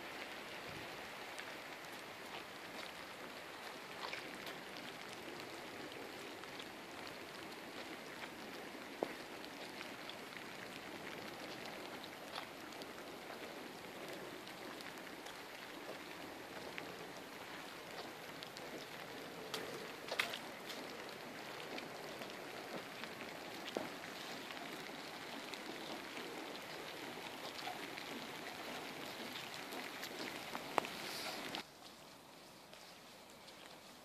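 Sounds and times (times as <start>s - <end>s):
light rain falling: 0.0s - 34.0s.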